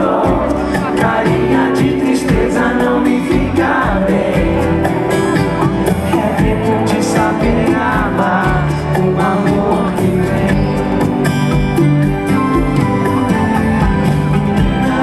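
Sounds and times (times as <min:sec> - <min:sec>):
person singing: 0:00.0 - 0:11.4
electronic drum kit: 0:00.0 - 0:15.0
upright bass: 0:00.0 - 0:15.0.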